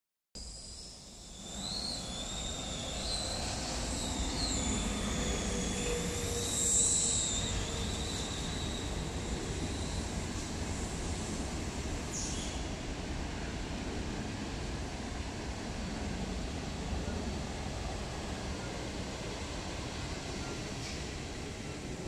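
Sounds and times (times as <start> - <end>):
air blower whining hum: 1.0 - 12.8.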